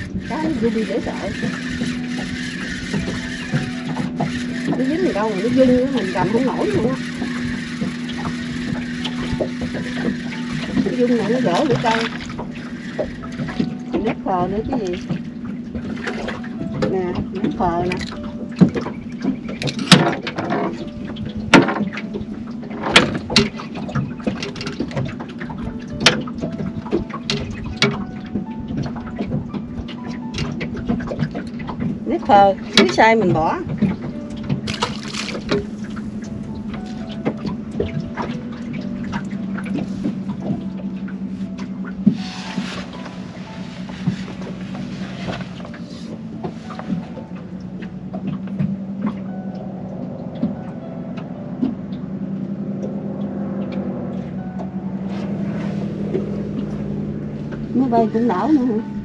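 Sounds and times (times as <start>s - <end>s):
low hum: 0.0s - 59.0s
clicks and knocks: 15.0s - 20.9s
sharp knocks and clatters: 18.0s - 20.8s.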